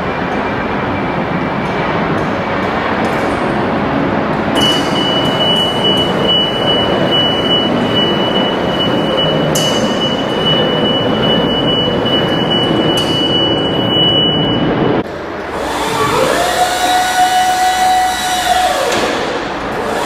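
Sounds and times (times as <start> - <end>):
scissor lift lowering rush: 0.0 - 20.0
high-pitched descent alarm tone: 4.6 - 15.0.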